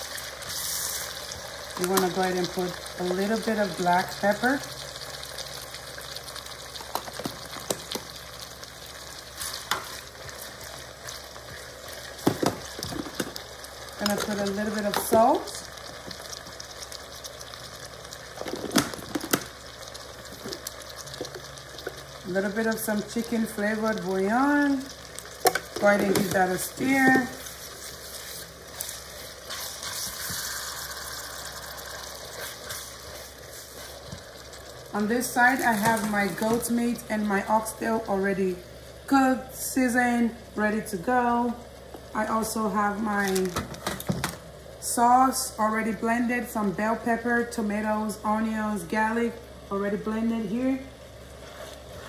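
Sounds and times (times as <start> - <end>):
vegetables sizzling in oil: 0.0 - 52.0
spatula scraping pot: 25.8 - 30.9, 51.4 - 52.0.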